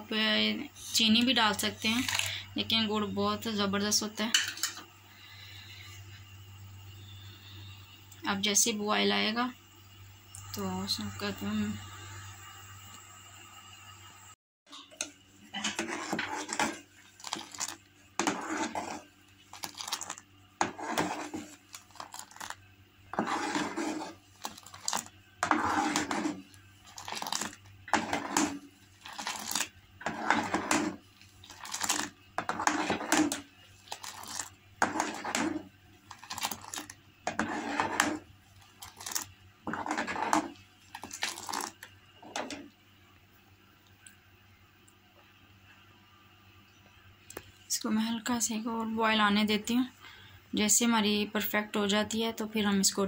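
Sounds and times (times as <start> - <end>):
ladle scraping metal pot: 14.7 - 42.6
tea splashing: 40.0 - 41.9.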